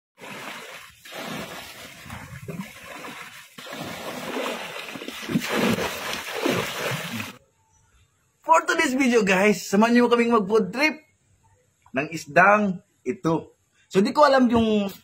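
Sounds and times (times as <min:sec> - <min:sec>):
water splashing from buckets: 0:00.2 - 0:07.4.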